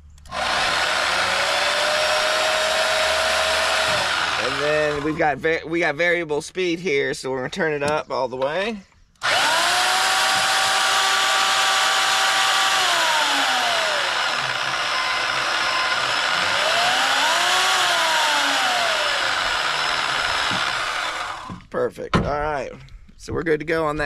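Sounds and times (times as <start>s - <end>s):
band saw motor whine: 0.2s - 5.5s, 9.2s - 21.7s.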